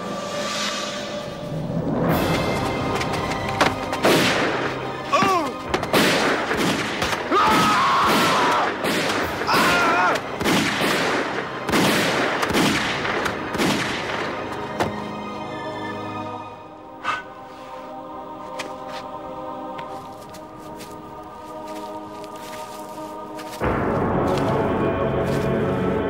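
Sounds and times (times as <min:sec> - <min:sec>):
pistol gunfire: 0:10.4 - 0:14.2.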